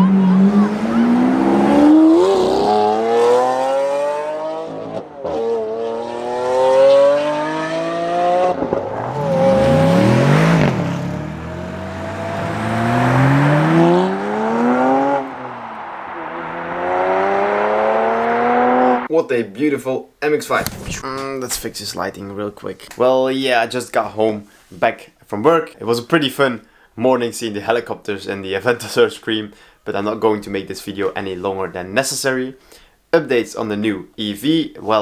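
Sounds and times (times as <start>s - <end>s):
sports car accelerating through gears: 0.0s - 19.1s
car passing by: 6.0s - 19.1s.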